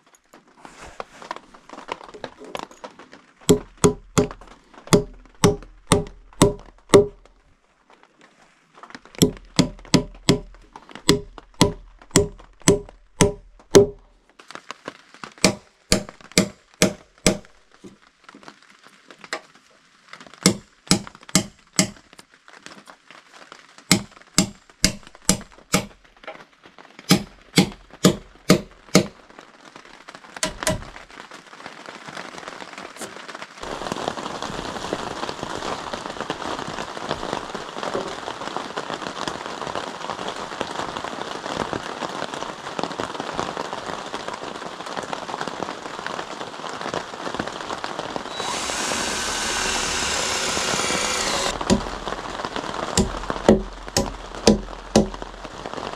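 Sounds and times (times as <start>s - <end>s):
steady rain: 0.0s - 55.9s
hammer blows on wood: 3.5s - 7.2s, 9.2s - 14.0s, 48.3s - 52.0s.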